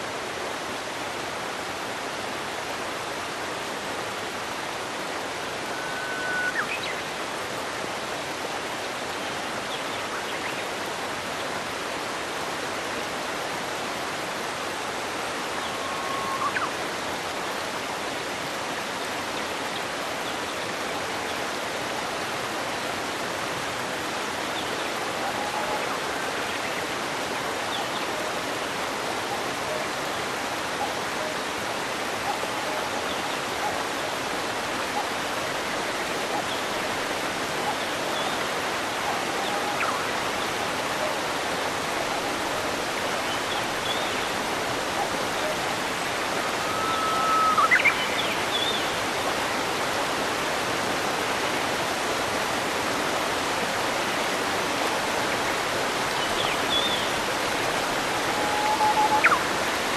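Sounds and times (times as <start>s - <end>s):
waterfall rushing: 0.0s - 59.9s
upward sweeping whistle: 58.4s - 59.3s.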